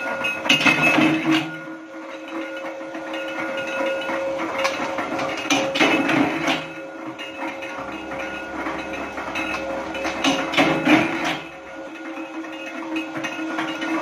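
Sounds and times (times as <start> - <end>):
power press humming: 0.0 - 14.0.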